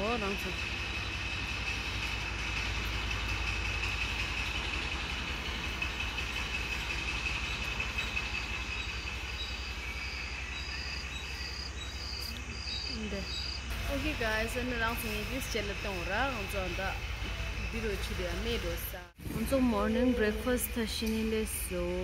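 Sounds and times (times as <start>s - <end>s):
insect drone: 0.2s - 19.5s
cricket chirping: 5.7s - 13.7s.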